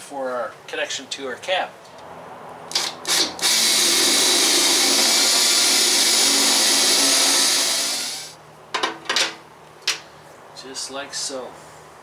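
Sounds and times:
cordless drill boring through metal: 2.7 - 8.4.

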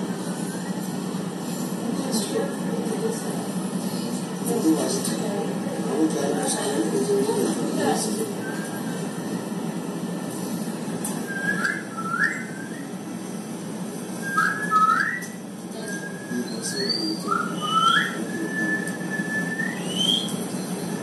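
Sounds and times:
rising whistle-like chirps: 11.3 - 13.0, 14.2 - 21.0.

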